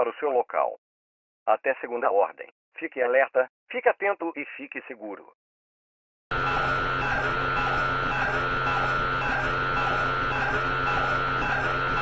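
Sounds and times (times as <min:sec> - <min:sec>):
pulsing electronic drone: 0:06.3 - 0:12.0.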